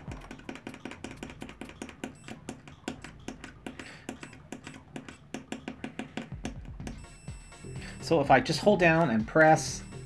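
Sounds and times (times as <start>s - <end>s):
metal probe tips tapping: 0.0s - 7.1s.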